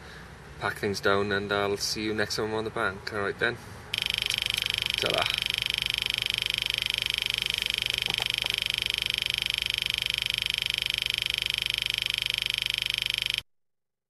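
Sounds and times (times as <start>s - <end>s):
high-pitched electronic buzz: 4.0s - 13.4s.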